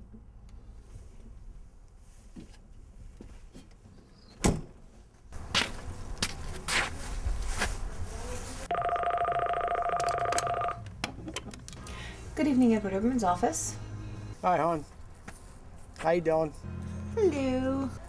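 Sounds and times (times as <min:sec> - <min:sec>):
footsteps: 0:05.3 - 0:08.7
desk phone ringing: 0:08.7 - 0:10.9.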